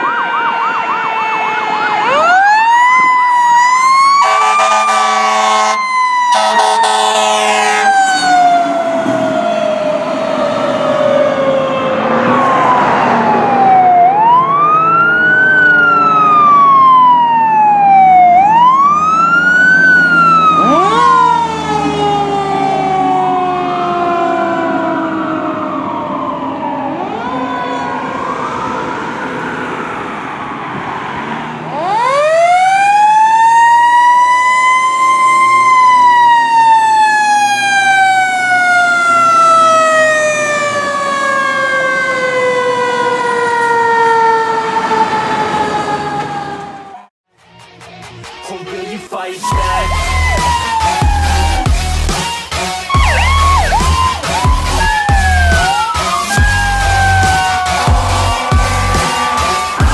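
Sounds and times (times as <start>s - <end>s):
fire truck sirens wailing: 0.0s - 47.2s, 48.2s - 59.9s.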